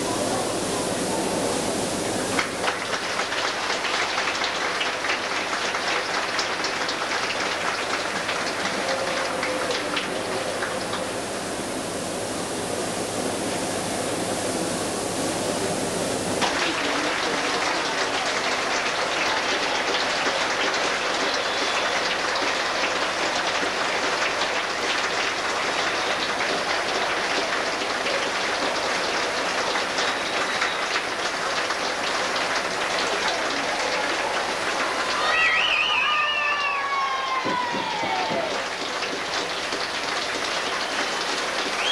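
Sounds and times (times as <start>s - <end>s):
arena crowd noise: 0.0s - 41.9s
videotape hiss: 0.0s - 41.9s
high wavering cry: 35.0s - 38.0s.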